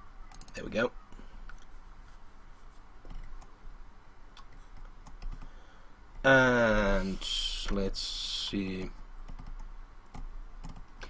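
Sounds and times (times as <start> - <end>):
keyboard and mouse clicks: 0.3 - 0.6, 3.0 - 3.5, 4.3 - 5.5, 8.8 - 11.0.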